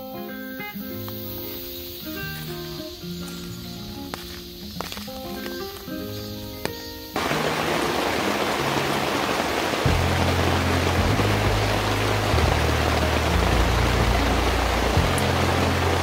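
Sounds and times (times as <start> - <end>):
background music with bass: 7.2 - 16.0
heavy rain: 7.2 - 16.0.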